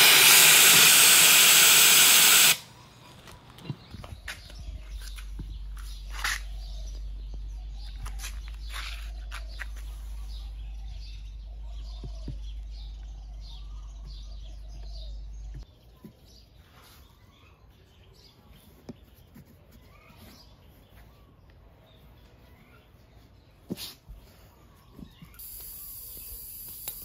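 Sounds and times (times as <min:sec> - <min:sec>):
birds chirping: 0:00.0 - 0:27.0
low steady hum: 0:02.6 - 0:15.7.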